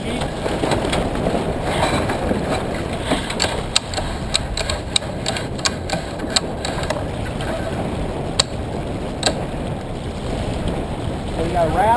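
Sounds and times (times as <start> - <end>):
water noise: 0.0 - 11.9
wind: 0.0 - 11.9
winch ratcheting clicks: 3.2 - 7.0.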